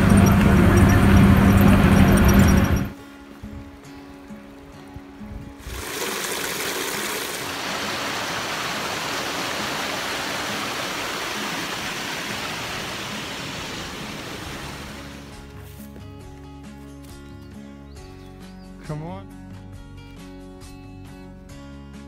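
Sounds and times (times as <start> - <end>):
stream flowing over rocks: 0.0 - 15.5.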